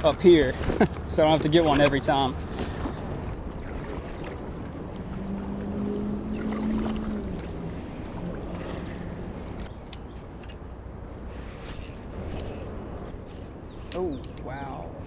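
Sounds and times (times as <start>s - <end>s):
low steady hum: 0.0s - 15.0s
paddle strokes in water: 1.7s - 9.7s
water drips and splashes: 2.8s - 10.6s.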